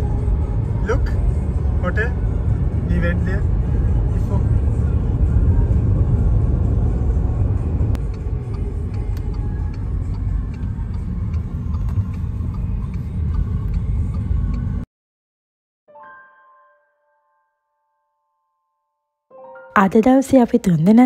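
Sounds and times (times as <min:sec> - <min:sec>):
car road and engine rumble: 0:00.0 - 0:14.9
light ticks: 0:07.9 - 0:14.7.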